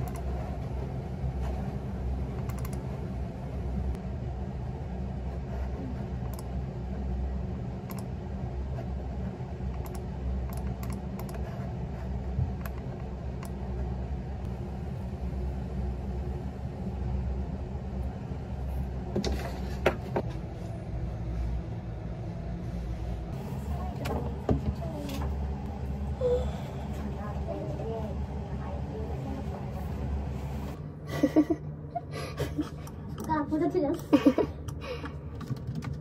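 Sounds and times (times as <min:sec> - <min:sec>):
computer mouse clicking: 0:00.0 - 0:00.3, 0:02.4 - 0:02.9, 0:06.2 - 0:06.5, 0:07.8 - 0:08.1, 0:09.7 - 0:11.5, 0:12.5 - 0:13.6
keyboard typing: 0:00.0 - 0:00.4, 0:02.4 - 0:02.9, 0:09.7 - 0:11.5, 0:34.7 - 0:36.0
steady low hum: 0:00.0 - 0:36.0.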